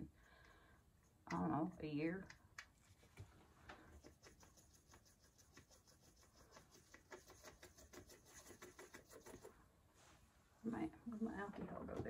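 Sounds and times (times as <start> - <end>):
paintbrush scrubbing in palette: 3.8 - 9.6.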